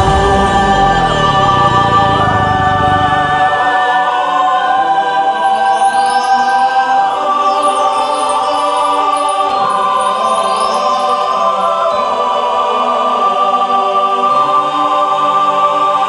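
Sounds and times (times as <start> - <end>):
musical accompaniment: 0.0 - 14.5
choir singing held notes: 0.0 - 16.0.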